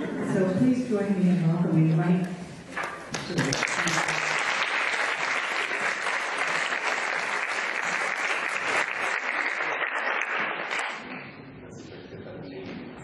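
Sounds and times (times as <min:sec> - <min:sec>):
audience applauding: 0:02.8 - 0:11.3.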